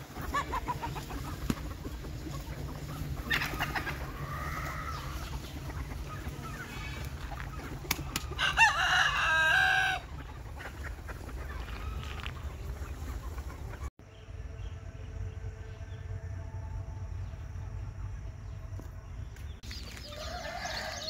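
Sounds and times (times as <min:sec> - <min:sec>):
steady low rumble: 0:00.0 - 0:08.4, 0:10.0 - 0:19.9
chickens clucking: 0:00.0 - 0:13.9
rooster crowing loudly: 0:08.4 - 0:10.0, 0:20.1 - 0:21.0.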